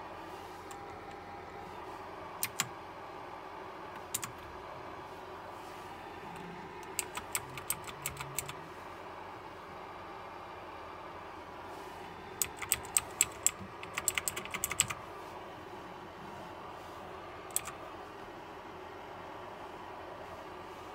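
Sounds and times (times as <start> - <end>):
mechanical keyboard clicking: 2.4 - 2.7, 4.0 - 4.4, 6.8 - 8.6, 12.4 - 15.0, 17.5 - 17.8.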